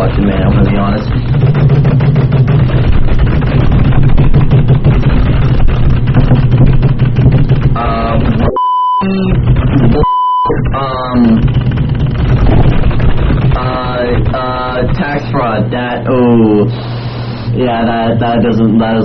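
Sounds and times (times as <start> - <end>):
keyboard typing: 0.0 - 17.5
steady low hum: 0.0 - 19.0
short high beeps: 8.5 - 9.1, 10.0 - 10.6.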